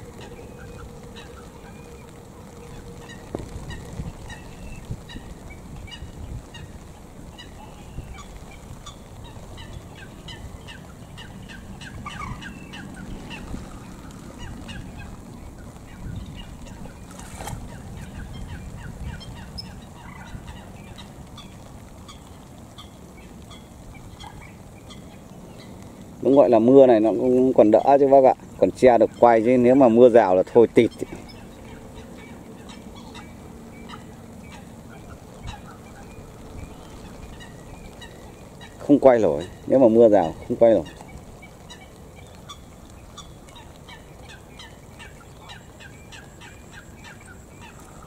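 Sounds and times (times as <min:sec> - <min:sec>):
light rain hiss: 0:00.0 - 0:48.0.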